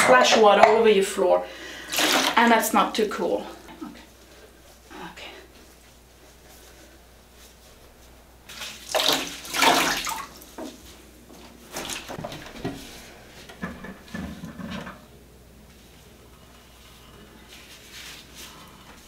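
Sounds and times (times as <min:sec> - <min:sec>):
water splashing into plastic bucket: 0:01.9 - 0:02.4, 0:08.5 - 0:10.4.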